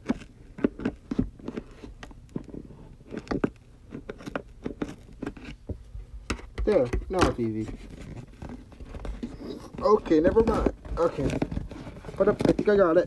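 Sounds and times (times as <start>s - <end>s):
scissors cutting cardboard: 0.0s - 2.0s, 3.0s - 5.6s.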